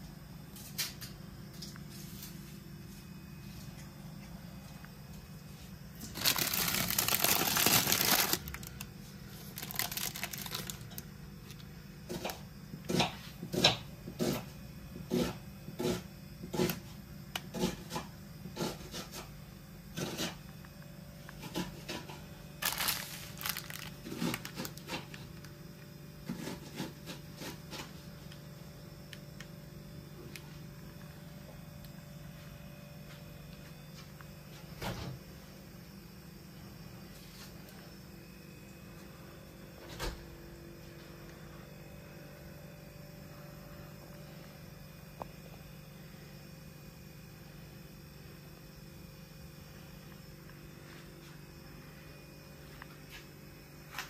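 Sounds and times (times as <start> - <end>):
low steady hum: 0.0 - 54.0
plastic packaging crinkling: 6.0 - 11.6, 22.6 - 25.5.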